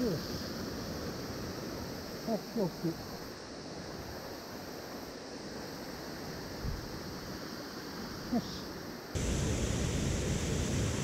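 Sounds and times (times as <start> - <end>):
water rushing over a weir: 9.2 - 11.0.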